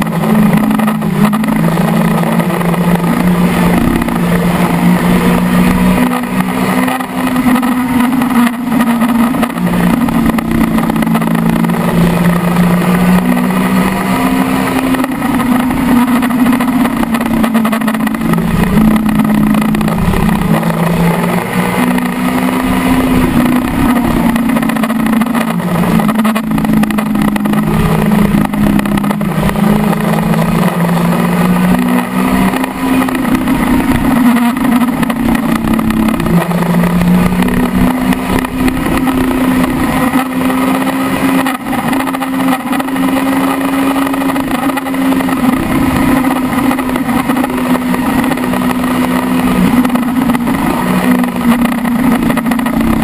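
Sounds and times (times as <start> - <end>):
motorcycle engine at high revs: 0.0 - 53.0.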